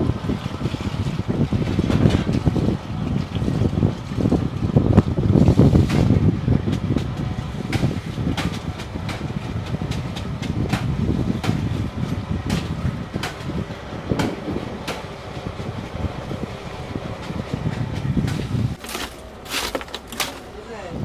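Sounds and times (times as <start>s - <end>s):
boat engine rumbling: 0.0s - 21.0s
clicks and knocks of baskets: 18.3s - 20.6s.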